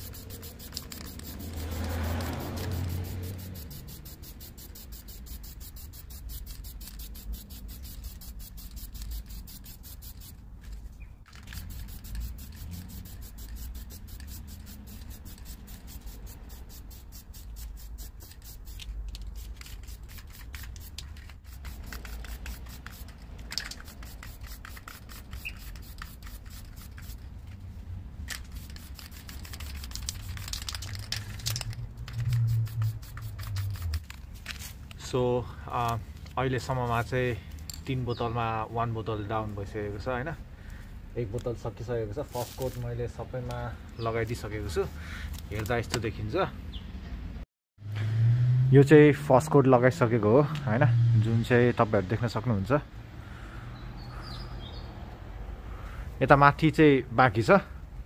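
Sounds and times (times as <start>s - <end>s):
spray paint can hissing: 0.0s - 10.4s, 11.3s - 27.3s, 28.3s - 34.4s
steady low rumble: 30.9s - 34.4s.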